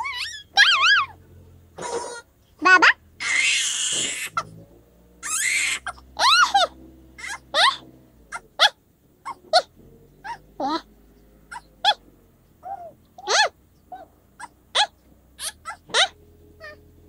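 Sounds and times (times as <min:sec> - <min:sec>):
cat mewing: 0:01.8 - 0:04.5, 0:12.6 - 0:16.8.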